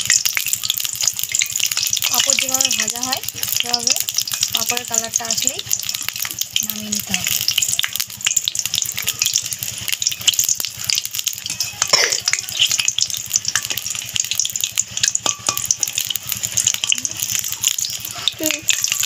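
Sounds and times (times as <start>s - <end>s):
food deep-frying in oil: 0.0s - 19.0s
metal spatula scraping pan: 7.3s - 14.2s.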